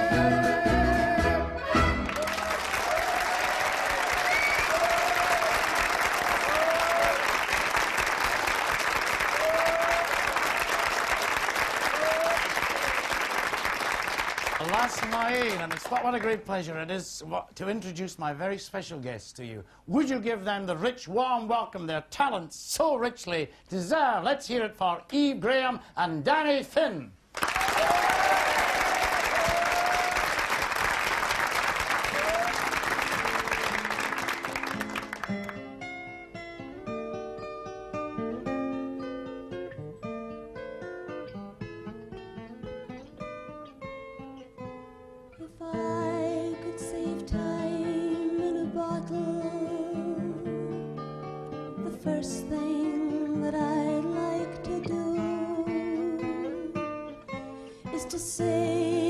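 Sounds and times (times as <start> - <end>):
acoustic guitar playing: 0.0 - 2.5, 14.2 - 16.6, 31.4 - 59.0
audience applauding: 1.7 - 16.5, 27.3 - 35.7.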